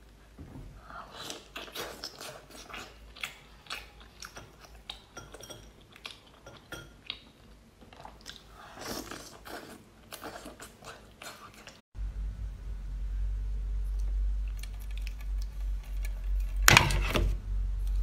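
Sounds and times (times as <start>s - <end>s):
wet chewing and smacking: 1.1s - 11.8s, 13.9s - 16.3s.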